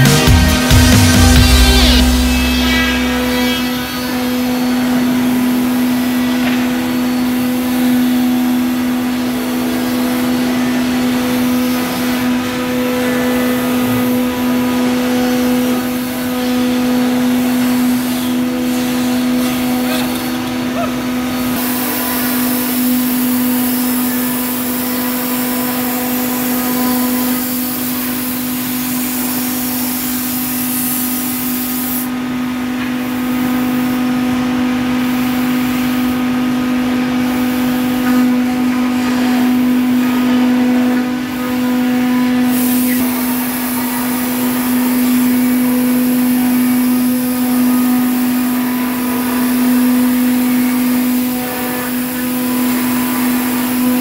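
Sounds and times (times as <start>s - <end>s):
router spindle whining: 0.0s - 54.0s
compressed air blow gun hissing: 27.4s - 32.1s.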